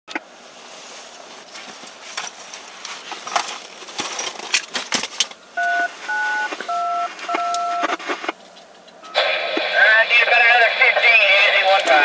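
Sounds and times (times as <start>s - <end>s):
keypad beep: 5.6s - 8.0s.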